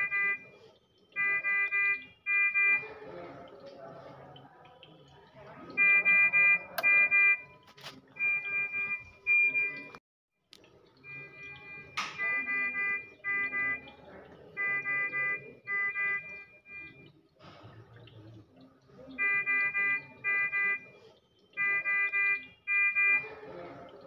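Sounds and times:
medical monitor alarm beeping: 0.0 - 3.2, 5.6 - 10.0, 11.0 - 17.2, 19.1 - 23.9.

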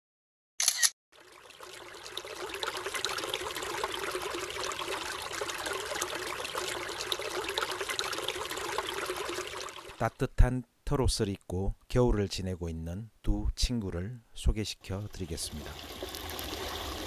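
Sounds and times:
stream trickling over rocks: 1.2 - 10.0, 15.2 - 17.0.

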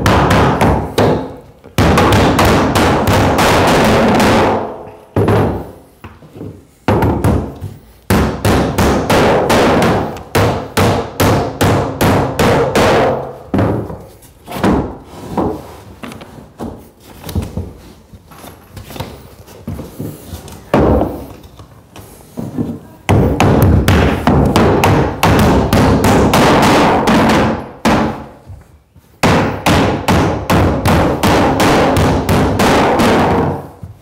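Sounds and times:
blows knocking wooden floorboards: 0.0 - 15.7, 22.4 - 28.6, 29.2 - 34.0.

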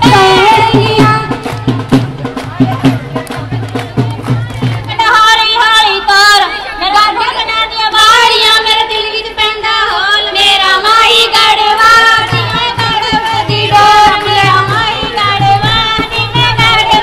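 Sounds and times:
women singing folk song: 0.0 - 1.6, 4.0 - 17.0
low drum beat: 0.0 - 5.0, 12.1 - 17.0.

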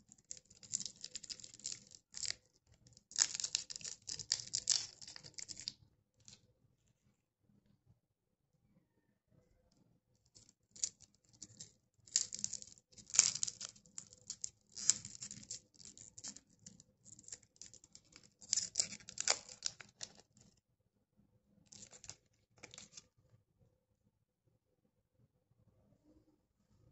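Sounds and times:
wrappers crinkling and tearing: 0.1 - 2.4, 3.0 - 5.7, 10.8 - 16.4, 17.1 - 20.4, 21.7 - 23.0.

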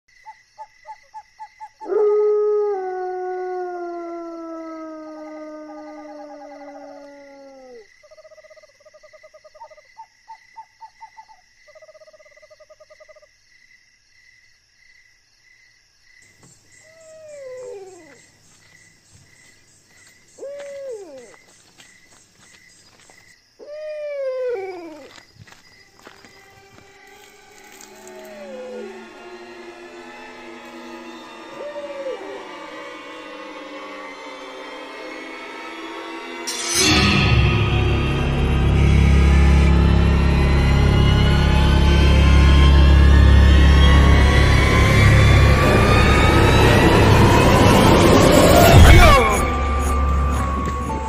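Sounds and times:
rising and falling howls: 1.8 - 7.9, 16.9 - 18.3, 26.0 - 51.0
steady high whine: 26.7 - 51.0
long downward sliding tone: 27.4 - 51.0.

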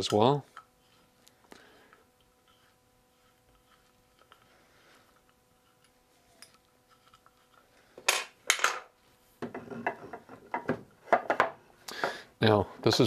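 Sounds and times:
wooden pieces knocking and rattling: 8.0 - 11.6.

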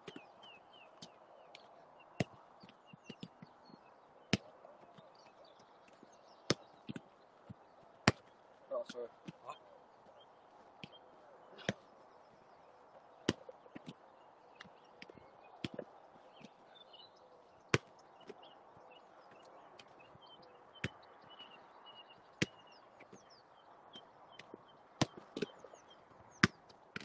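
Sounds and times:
foot kicking football: 2.1 - 3.5, 4.3 - 5.0, 6.5 - 8.3, 13.2 - 14.0, 14.6 - 16.6, 17.7 - 18.4, 22.4 - 23.3, 24.4 - 25.6, 26.3 - 27.0.

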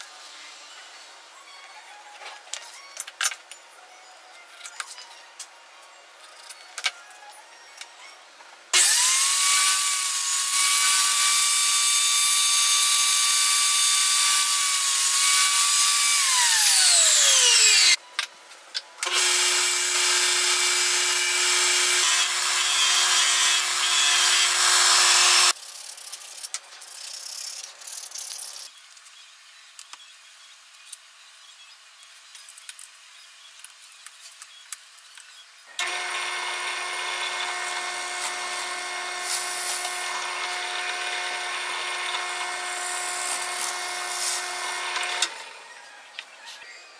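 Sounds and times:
drill press boring into wood: 8.8 - 18.0, 19.0 - 25.6, 35.8 - 45.4
table saw whining: 8.8 - 18.0, 19.0 - 25.6, 35.8 - 45.8
disc sander sanding wood: 35.8 - 45.4.

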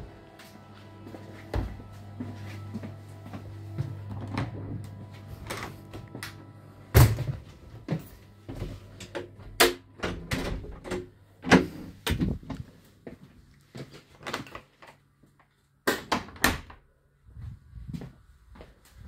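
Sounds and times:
low steady hum: 0.0 - 13.7.

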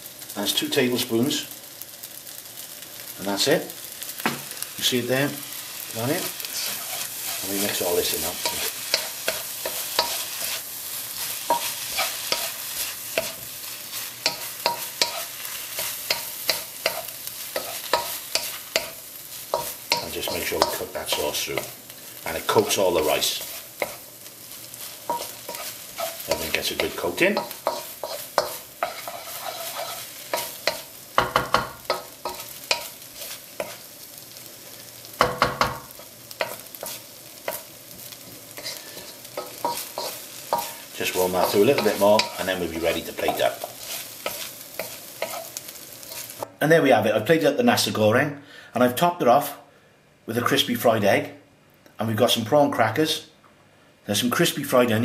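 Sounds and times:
rice sizzling in a pan: 0.0 - 46.5
utensil knocking against pan: 31.2 - 32.1, 35.2 - 35.9.

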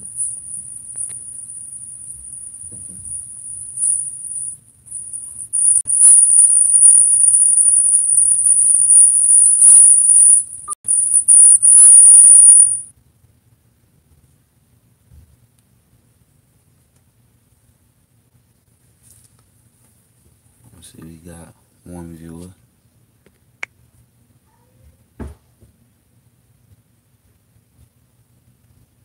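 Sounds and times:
high-pitched whine: 0.0 - 12.9.

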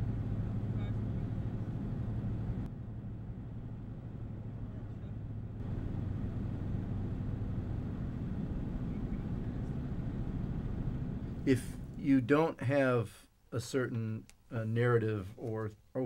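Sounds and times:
car road rumble inside cabin: 0.0 - 12.0.

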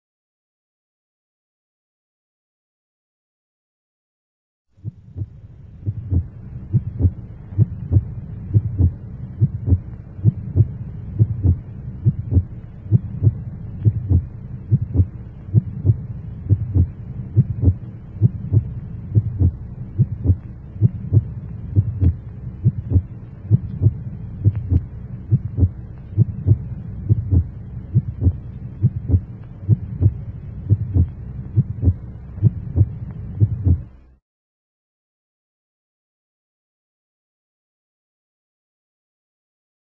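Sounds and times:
constant low hum: 4.7 - 34.2
short low thumps: 4.8 - 33.9.

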